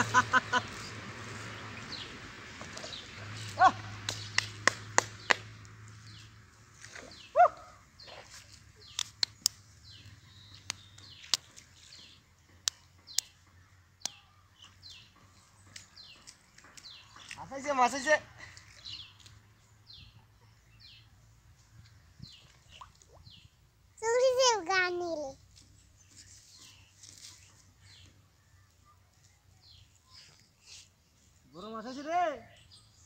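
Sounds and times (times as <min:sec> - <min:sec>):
birds chirping: 0:00.0 - 0:24.4
animal calls: 0:07.0 - 0:08.3.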